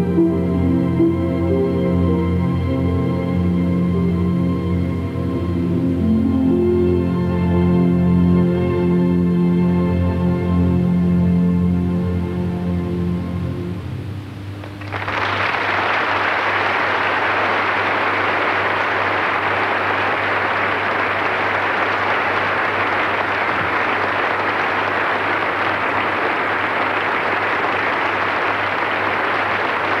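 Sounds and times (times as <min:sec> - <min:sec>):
low steady hum: 0:00.0 - 0:30.0
audience applauding: 0:14.6 - 0:30.0.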